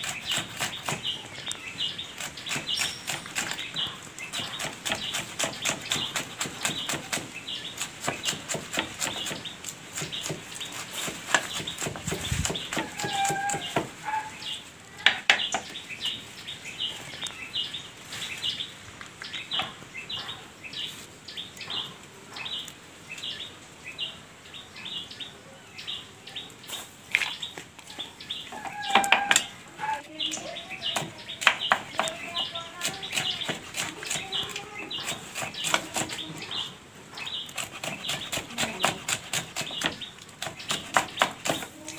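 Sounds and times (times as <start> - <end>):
bird chirping: 0.0 - 41.9
knife chopping on wooden board: 4.3 - 14.0, 30.9 - 32.2, 32.8 - 34.4, 35.0 - 36.2, 37.5 - 41.8.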